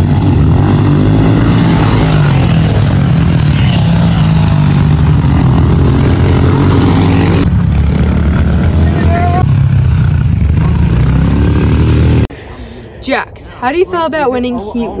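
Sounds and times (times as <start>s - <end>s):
motorbike engines droning: 0.0s - 12.3s.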